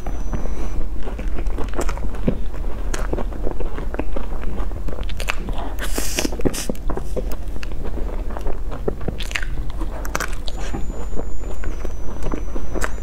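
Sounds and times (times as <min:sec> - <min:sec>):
chewing with small crackles: 0:00.0 - 0:13.0
crunching pastry crust: 0:00.0 - 0:13.0.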